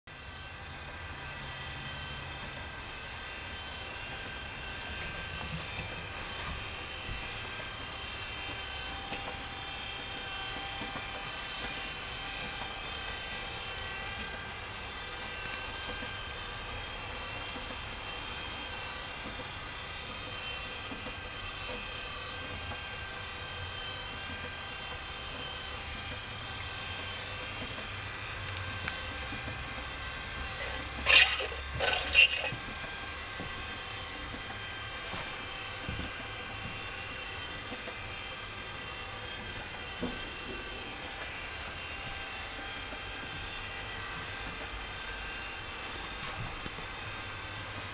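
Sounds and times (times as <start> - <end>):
small electric motors whirring: 0.2 - 32.7.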